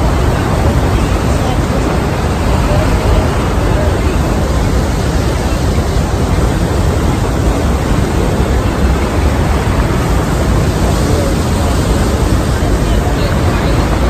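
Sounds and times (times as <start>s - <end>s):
waterfall roaring: 0.0s - 14.0s.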